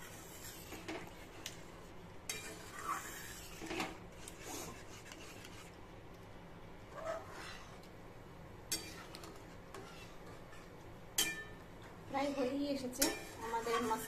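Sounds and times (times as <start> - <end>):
metal spatula scraping pan: 0.0 - 1.4, 2.3 - 5.7, 6.9 - 7.8, 8.7 - 14.0.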